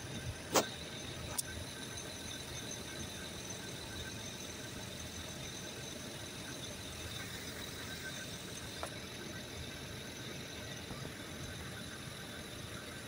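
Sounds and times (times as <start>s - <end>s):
faint high whine: 0.0s - 13.0s.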